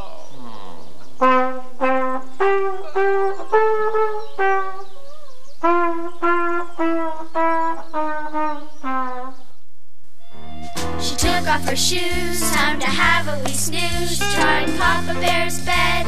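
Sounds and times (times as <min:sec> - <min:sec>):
flugelhorn slow melody: 0:01.2 - 0:05.0, 0:05.6 - 0:09.4.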